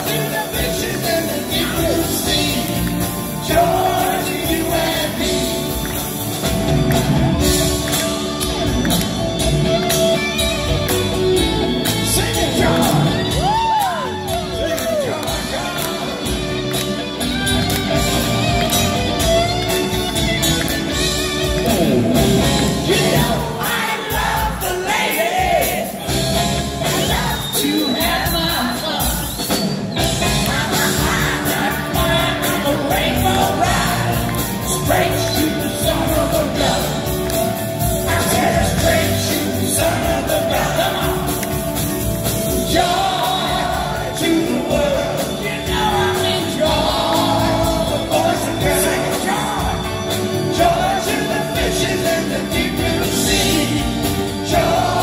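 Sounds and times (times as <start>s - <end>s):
man singing: 0.0s - 5.8s, 11.9s - 16.6s, 21.5s - 24.8s, 30.2s - 41.6s, 42.4s - 55.0s
live rock band: 0.0s - 55.0s.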